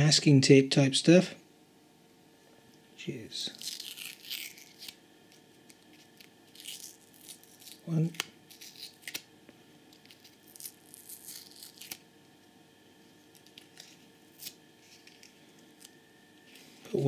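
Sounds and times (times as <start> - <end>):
tape being peeled crackling: 3.5 - 16.6.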